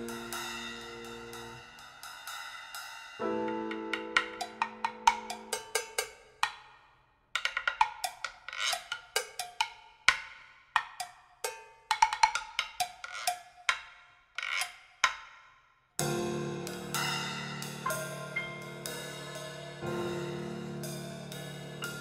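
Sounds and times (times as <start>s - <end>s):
struck percussion notes: 0.0s - 1.9s, 16.0s - 22.0s.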